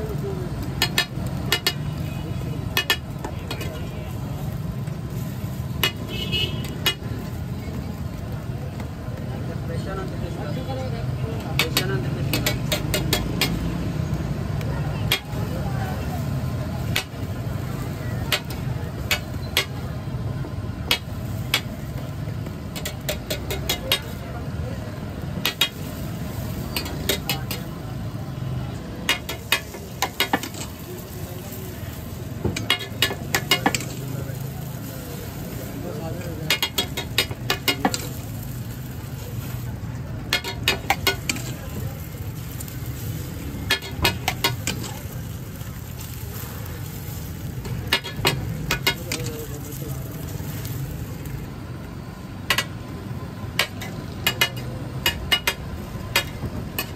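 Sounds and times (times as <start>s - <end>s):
metal spatula tapping griddle: 0.6s - 2.0s, 2.6s - 3.8s, 4.9s - 6.1s, 6.7s - 7.1s, 11.4s - 13.7s, 14.6s - 15.4s, 16.8s - 17.2s, 18.0s - 19.8s, 20.8s - 24.2s, 25.4s - 27.7s, 29.0s - 35.4s, 36.1s - 39.6s, 40.2s - 43.0s, 43.6s - 45.1s, 47.5s - 50.8s, 52.4s - 52.8s, 53.5s - 56.9s.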